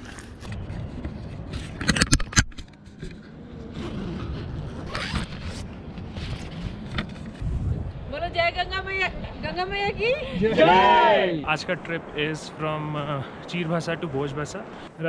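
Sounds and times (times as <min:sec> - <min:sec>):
tent zipper pulls: 0:03.7 - 0:06.8.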